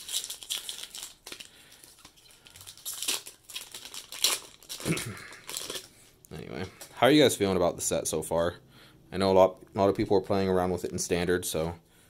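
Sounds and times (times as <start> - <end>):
foil wrapper crinkling: 0.0 - 5.9.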